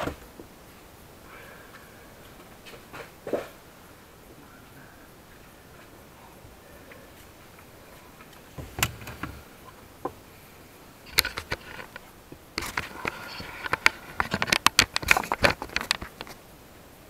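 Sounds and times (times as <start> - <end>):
scraping rustle: 5.3 - 9.9, 11.0 - 16.4
plastic trim clicks and knocks: 8.6 - 9.4.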